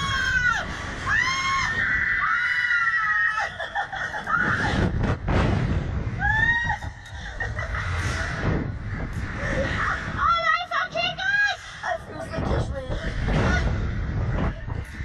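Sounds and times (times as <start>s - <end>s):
women screaming: 0.0s - 4.8s
wind rushing on microphone: 3.4s - 15.0s.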